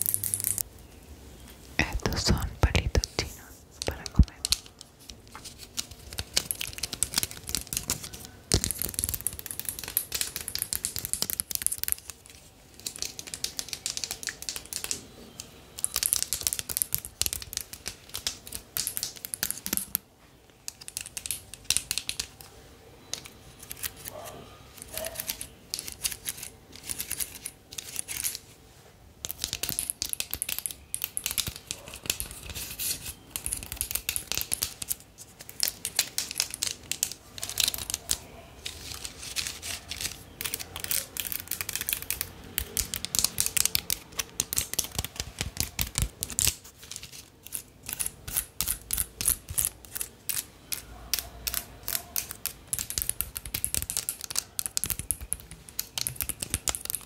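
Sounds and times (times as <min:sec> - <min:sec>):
crinkling and crackling: 0:00.0 - 0:57.0.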